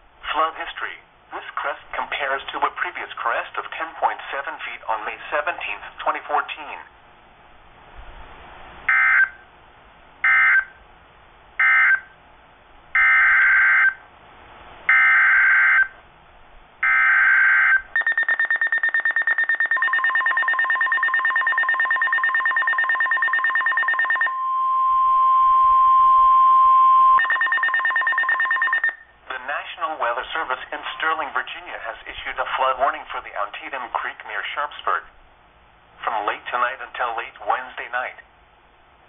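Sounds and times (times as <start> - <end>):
rapidly pulsing alarm beep: 8.9 - 9.4, 10.2 - 10.8, 11.6 - 12.1, 13.0 - 14.0, 14.9 - 15.9, 16.8 - 29.2
screeching data tone bursts: 16.8 - 26.0, 26.6 - 29.1
steady alert tone: 18.0 - 29.0.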